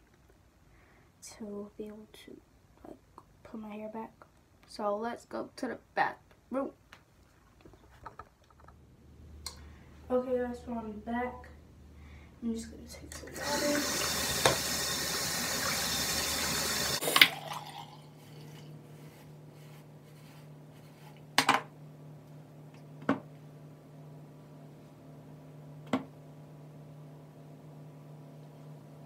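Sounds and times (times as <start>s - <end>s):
low steady hum: 0.0s - 29.0s
tap running: 13.1s - 17.9s
tap shutting off with a clunk: 14.3s - 14.8s.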